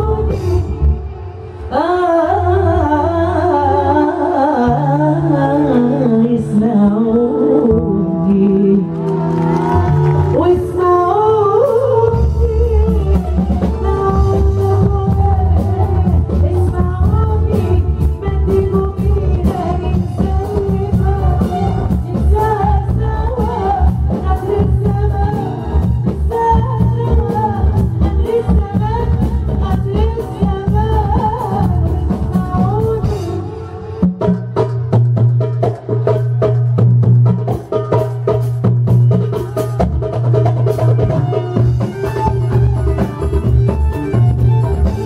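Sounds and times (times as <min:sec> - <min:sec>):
band playing: 0:00.0 - 0:02.3, 0:04.6 - 0:45.0
woman singing into a microphone: 0:00.0 - 0:34.3
low bass and drum beat: 0:09.4 - 0:45.0.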